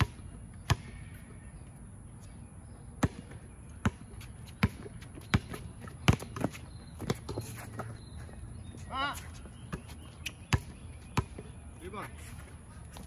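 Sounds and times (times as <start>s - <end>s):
basketball bouncing on hard court: 0.0s - 1.0s, 3.0s - 7.9s, 10.5s - 11.5s.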